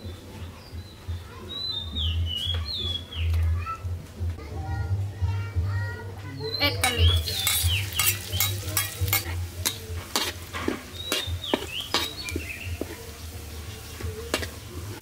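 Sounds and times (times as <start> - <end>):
metal spatula scraping a wok: 6.8 - 14.7
garlic sizzling in hot oil: 6.8 - 15.0.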